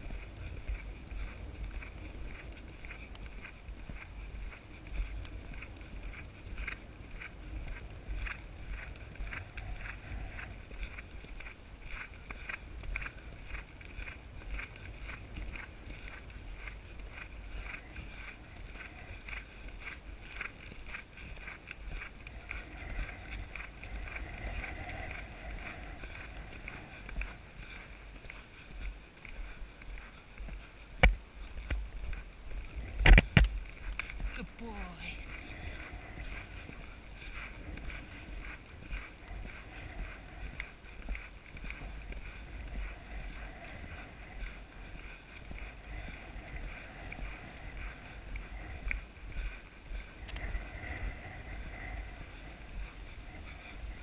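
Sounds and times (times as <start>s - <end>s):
horse hoofbeats on grass: 0.0s - 54.0s
wind rumbling on microphone: 0.0s - 54.0s
horse tack rattling: 0.1s - 31.9s.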